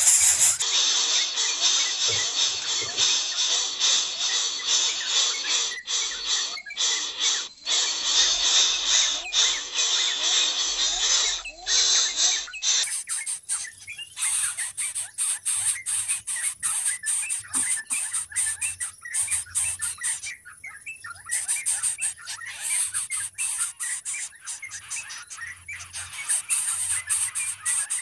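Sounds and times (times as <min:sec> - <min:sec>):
steady high hiss: 0:00.0 - 0:00.6
nestlings clicking and chirping: 0:00.0 - 0:00.7, 0:01.6 - 0:28.0.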